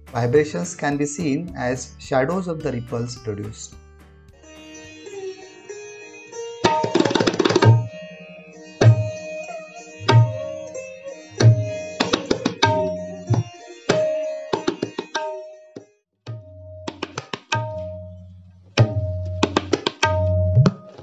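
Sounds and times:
ringing treble drum strokes: 0:08.8 - 0:15.4.

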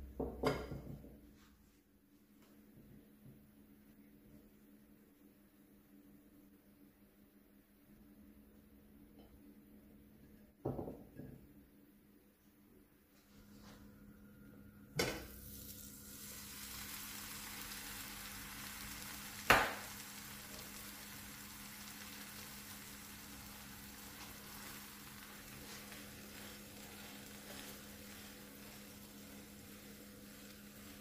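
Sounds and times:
sandwich sizzling in a pan: 0:15.2 - 0:31.0.

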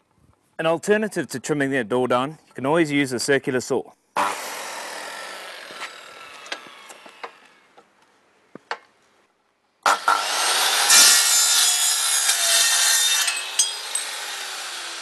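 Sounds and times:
circular saw cutting metal: 0:04.2 - 0:07.7, 0:09.9 - 0:15.0.

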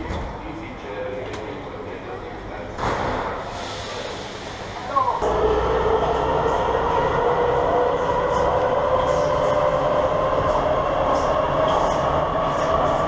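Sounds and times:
wheels rumbling and rattling on rail: 0:03.2 - 0:13.0.

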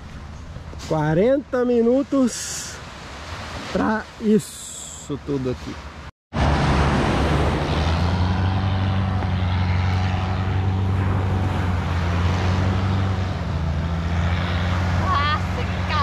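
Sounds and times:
boat engine droning: 0:06.4 - 0:16.0.

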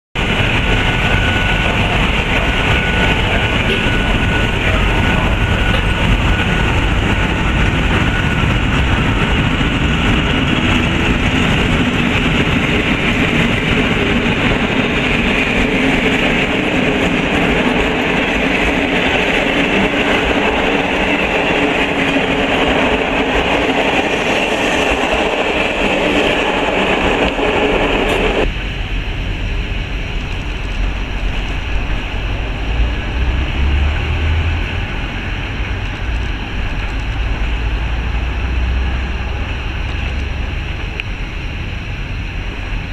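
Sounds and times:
train wheels rumbling on rail: 0:00.2 - 0:42.9.

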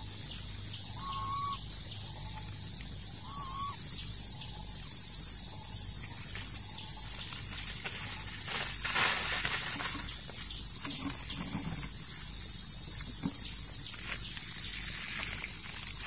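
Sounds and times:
insects droning: 0:00.0 - 0:16.0
short whistled calls: 0:01.0 - 0:01.6, 0:03.2 - 0:03.8.

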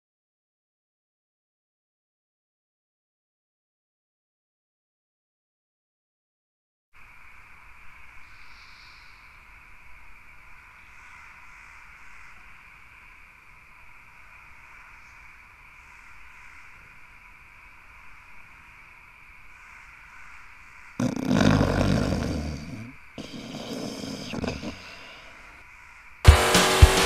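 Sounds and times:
high insect chirps: 0:07.0 - 0:26.3
steady hiss: 0:07.0 - 0:27.0.

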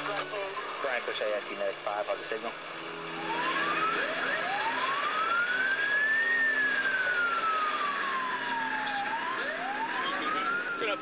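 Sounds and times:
ambulance siren wailing: 0:02.9 - 0:11.0.

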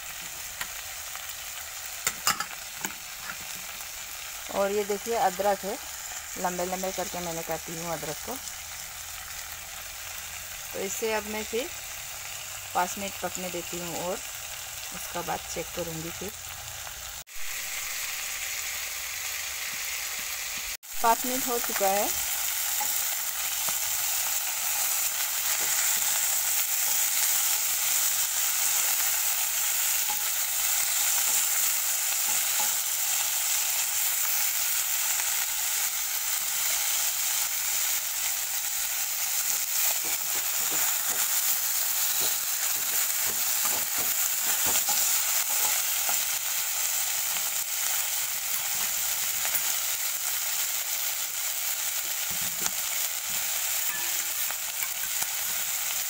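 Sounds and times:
fish sizzling in oil: 0:00.0 - 0:56.0
metal spatula scraping wok: 0:53.3 - 0:55.6.

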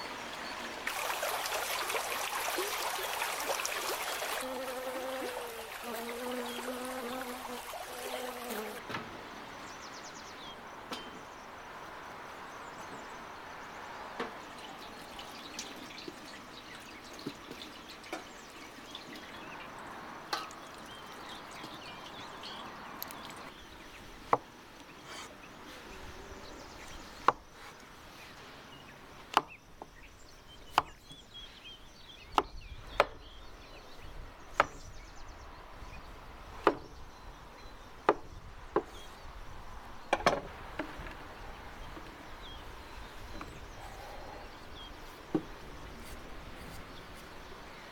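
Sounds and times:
water splashing and dripping: 0:00.0 - 0:08.8, 0:14.3 - 0:23.5.

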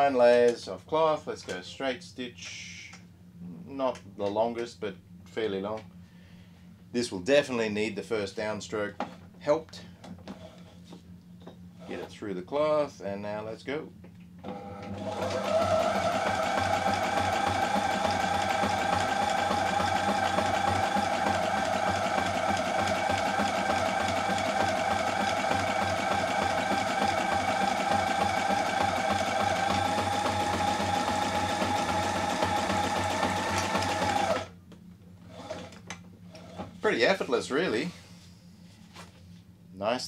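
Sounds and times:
sewing machine stitching: 0:14.5 - 0:34.5, 0:35.3 - 0:36.7.

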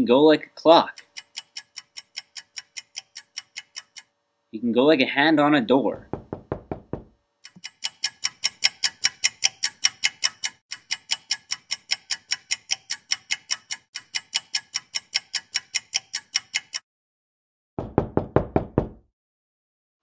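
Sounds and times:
clock ticking: 0:00.6 - 0:04.1, 0:07.4 - 0:16.8
knuckles knocking on door: 0:06.1 - 0:07.2, 0:17.8 - 0:19.0.

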